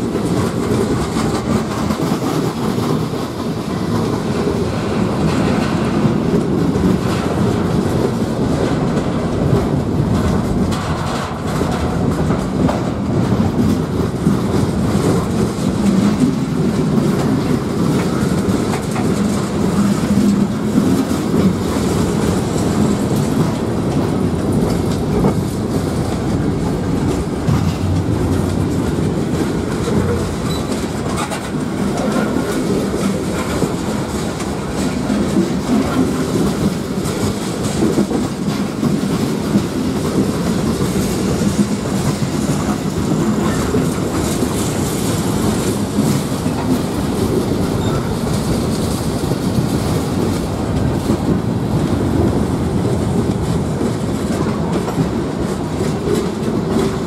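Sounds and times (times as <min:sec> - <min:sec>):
steel wheels rumbling on rail: 0:00.0 - 0:57.0
wheels clicking over rail joints: 0:00.0 - 0:57.0.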